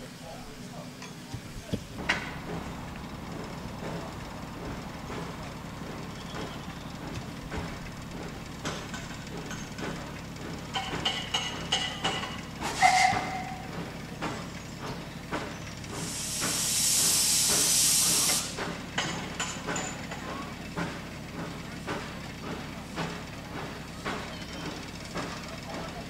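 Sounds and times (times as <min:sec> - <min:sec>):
steam locomotive hissing steam: 0:00.0 - 0:10.7, 0:12.3 - 0:26.0.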